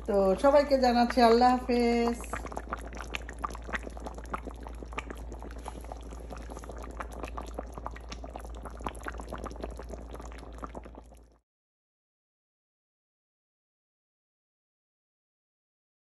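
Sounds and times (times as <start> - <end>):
curry bubbling in a pan: 0.0 - 11.4.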